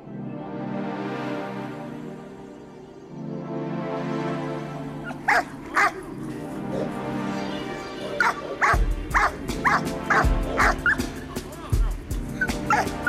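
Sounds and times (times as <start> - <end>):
background music: 0.0 - 13.0
dog barking: 5.0 - 7.0, 8.0 - 11.1, 12.4 - 13.0.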